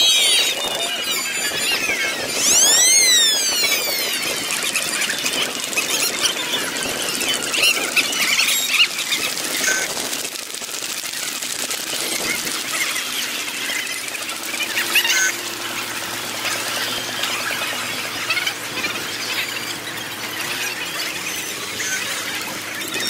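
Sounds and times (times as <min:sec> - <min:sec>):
whistle-like rising glide: 0:00.0 - 0:05.2
sped-up crowd noise: 0:00.0 - 0:23.0
sped-up passing vehicles: 0:00.0 - 0:23.0.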